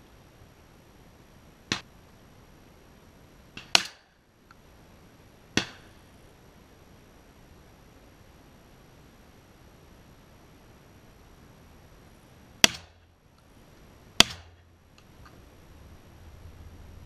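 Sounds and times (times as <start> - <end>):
shotgun shots: 14.2 - 14.6.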